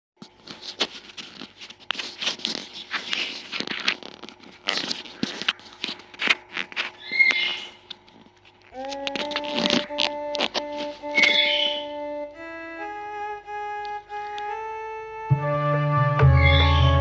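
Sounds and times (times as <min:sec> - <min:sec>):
rustling and scraping: 0:00.2 - 0:11.8
faint steady hum: 0:00.2 - 0:15.3
sharp clicks: 0:08.7 - 0:11.4.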